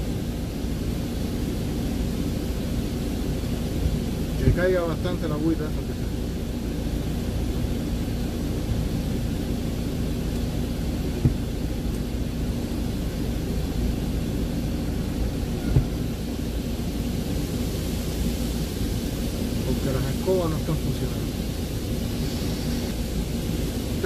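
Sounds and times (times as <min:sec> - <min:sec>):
diesel engine idling: 0:00.0 - 0:24.0
water spraying hiss: 0:00.0 - 0:24.0
short knocks: 0:15.6 - 0:16.1.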